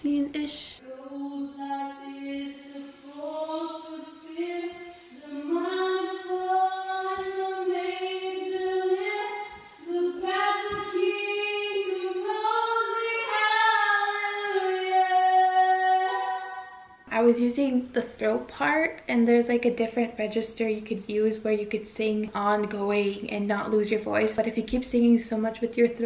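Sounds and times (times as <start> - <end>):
woman singing a cappella: 0.0 - 26.0.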